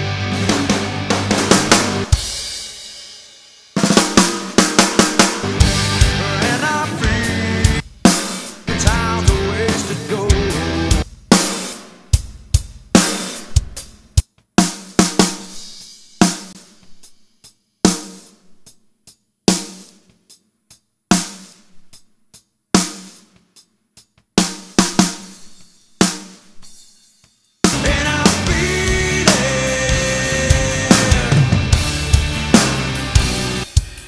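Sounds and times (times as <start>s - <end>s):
rock drum hits ringing out: 0.0s - 3.0s, 3.7s - 14.0s, 27.6s - 34.0s.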